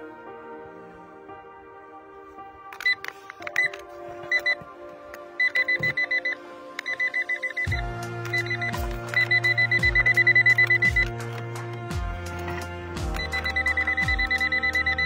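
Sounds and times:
metal detector high beeps: 0:02.8 - 0:04.6, 0:05.4 - 0:11.2, 0:12.5 - 0:15.0
background music with bass and beat: 0:07.6 - 0:15.0.

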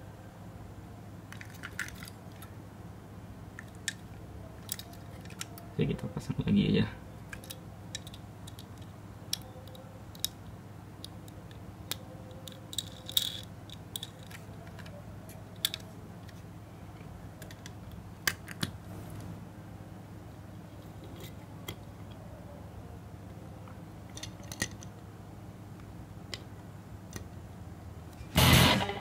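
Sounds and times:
steady low hum: 0:00.0 - 0:29.0
toy cars clicking and tapping: 0:01.3 - 0:02.5, 0:03.6 - 0:06.1, 0:07.3 - 0:10.4, 0:11.0 - 0:16.4, 0:17.4 - 0:18.7, 0:24.1 - 0:24.9.

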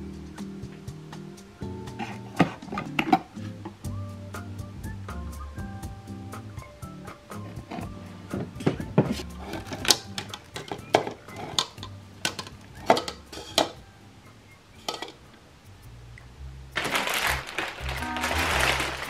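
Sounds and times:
plastic parts clicking and knocking: 0:08.4 - 0:13.8
plastic packaging crinkling: 0:16.8 - 0:19.0.

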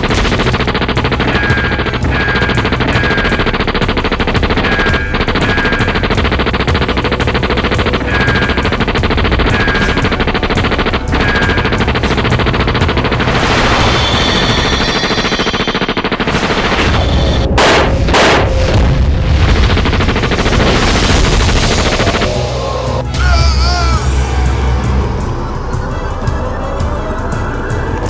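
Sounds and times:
rapid machine-gun fire: 0:00.0 - 0:22.3.

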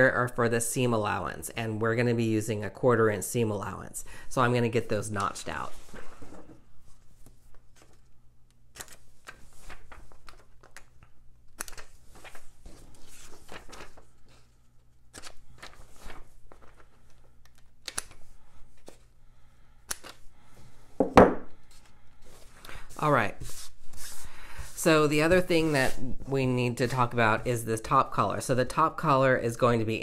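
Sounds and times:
paper rustling: 0:05.6 - 0:08.1, 0:08.8 - 0:19.1.

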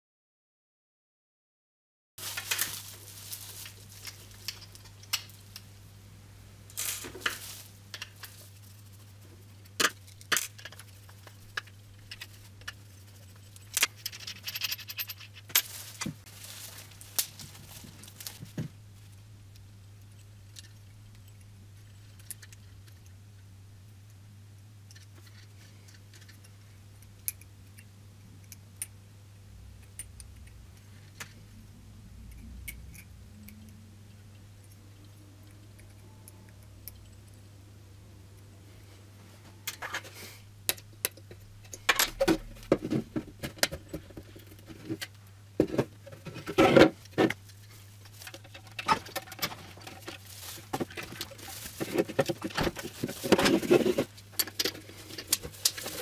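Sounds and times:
steady low hum: 0:02.2 - 0:56.0
small metal parts clinking: 0:09.6 - 0:18.4.

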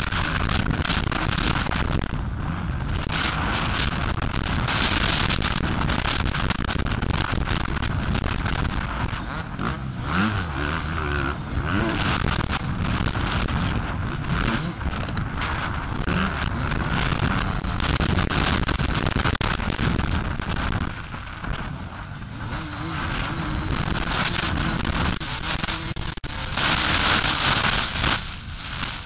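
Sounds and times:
motocross bike engine revving: 0:00.0 - 0:29.0
other motocross bikes: 0:00.0 - 0:29.0
wind buffeting microphone: 0:11.4 - 0:29.0.

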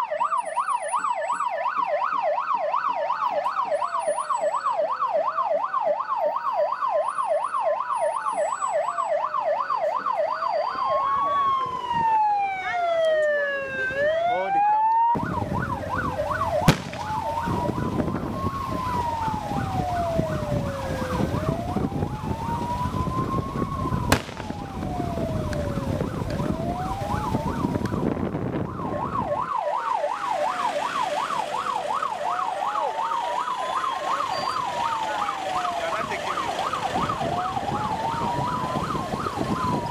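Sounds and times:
road and engine noise: 0:00.0 - 0:39.9
siren fast yelp: 0:00.0 - 0:39.9
siren slow wail: 0:00.0 - 0:39.9.

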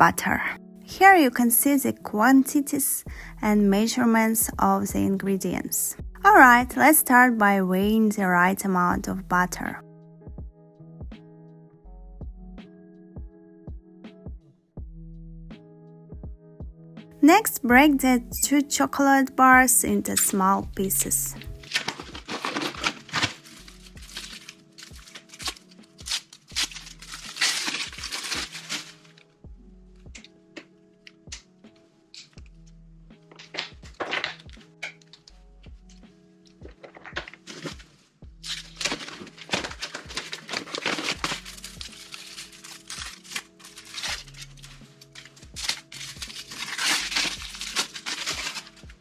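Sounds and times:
soft background music: 0:00.0 - 0:49.0
foil wrapper crinkling: 0:21.6 - 0:29.3, 0:33.3 - 0:35.3, 0:36.6 - 0:49.0.

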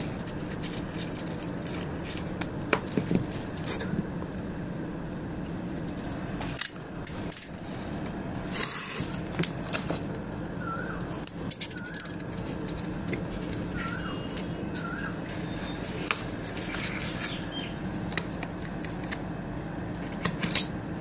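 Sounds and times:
cardboard rustle: 0:00.0 - 0:03.9
steady background hum: 0:00.0 - 0:21.0.

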